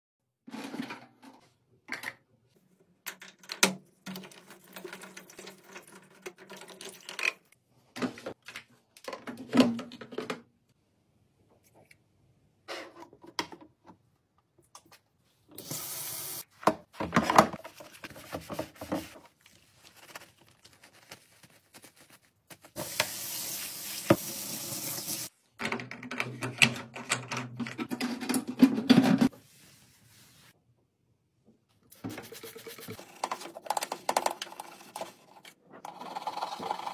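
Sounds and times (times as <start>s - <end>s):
plastic parts clicking and knocking: 3.0s - 7.4s, 25.6s - 29.3s, 33.0s - 36.8s
tap water running into sink: 22.8s - 25.3s.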